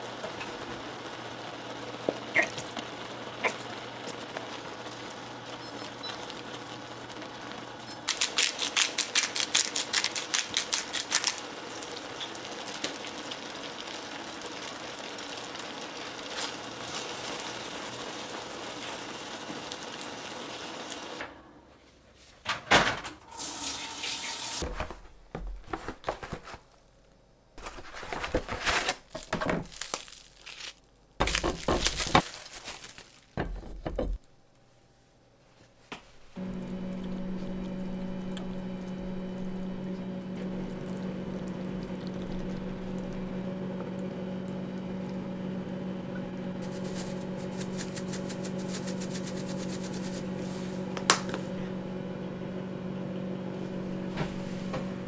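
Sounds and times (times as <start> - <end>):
plastic wrap crinkling: 8.0 - 13.6, 25.6 - 33.8, 46.6 - 50.9
sauce simmering in frying pan: 11.4 - 21.1.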